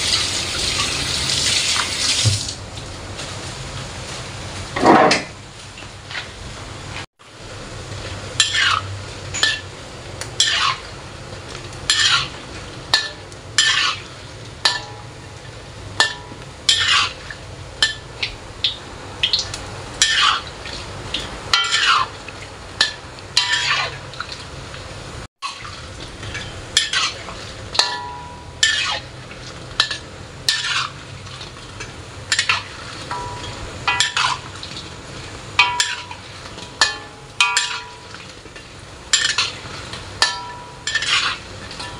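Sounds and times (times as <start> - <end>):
dough sizzling in hot oil: 0.0 - 41.9
spatula scraping a wok: 8.0 - 9.7, 10.4 - 11.0, 11.9 - 15.4, 16.0 - 18.1, 20.0 - 22.2, 22.8 - 24.1, 26.0 - 41.9.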